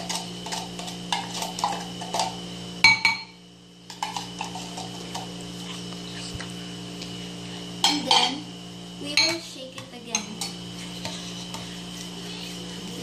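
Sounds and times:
spoon stirring in ceramic bowl: 0.0s - 2.4s, 3.8s - 6.2s, 9.1s - 13.0s
steady hum: 0.0s - 13.0s.

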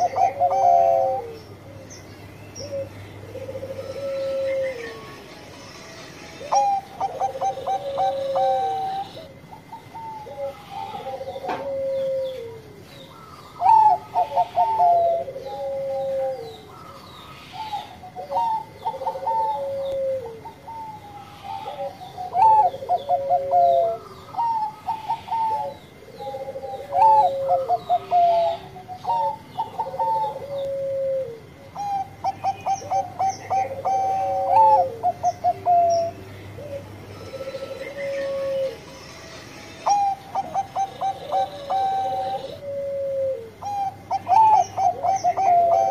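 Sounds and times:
dove cooing: 0.0s - 45.9s
high bird chirping: 31.7s - 39.2s, 43.6s - 45.9s.

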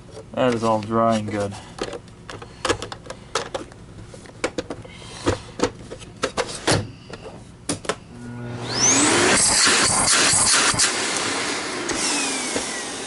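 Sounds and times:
vacuum cleaner motor whine: 8.1s - 13.0s.

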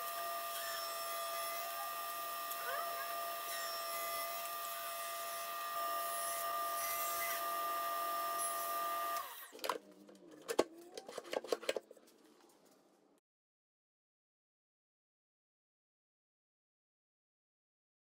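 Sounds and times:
table saw whining: 0.0s - 9.6s.

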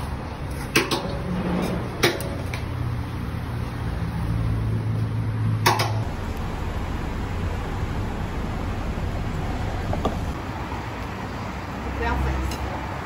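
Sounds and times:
steady low hum: 6.0s - 10.4s.

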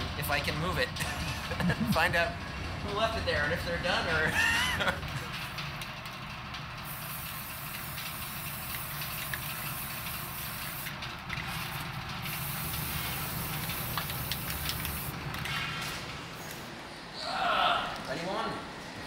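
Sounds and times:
spray paint can hissing: 6.8s - 15.2s.

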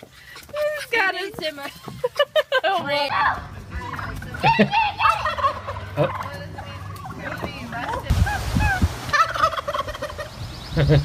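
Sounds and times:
turkeys gobbling: 3.1s - 11.0s.

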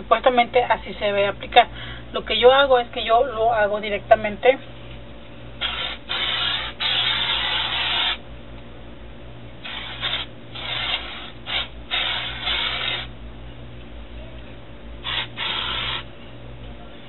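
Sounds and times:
aerosol spray hissing: 9.7s - 13.1s, 15.0s - 16.0s.

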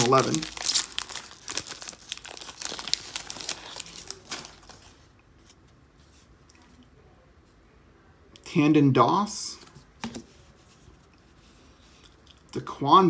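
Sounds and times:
foil wrapper crinkling and tearing: 0.0s - 4.9s.

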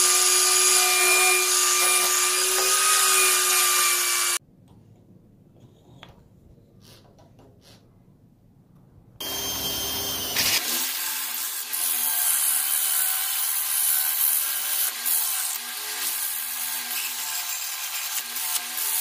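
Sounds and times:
electric drill whine: 9.2s - 10.9s.

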